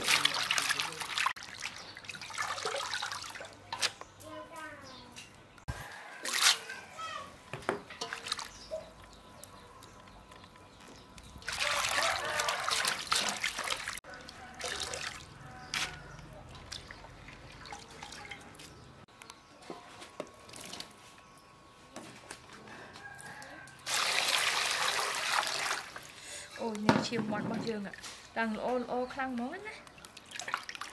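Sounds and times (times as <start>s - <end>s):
water pouring into metal basin: 0.0s - 3.6s, 11.4s - 15.4s, 23.8s - 26.1s
water dripping and splashing: 0.0s - 4.0s, 7.9s - 19.0s, 20.5s - 21.0s, 23.8s - 26.1s, 29.3s - 30.9s.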